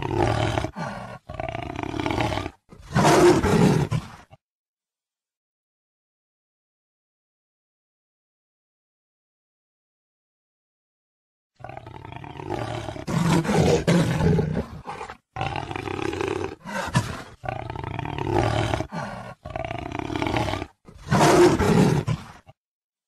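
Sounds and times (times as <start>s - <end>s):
jaguar snarling: 0.0s - 4.4s, 11.6s - 22.6s.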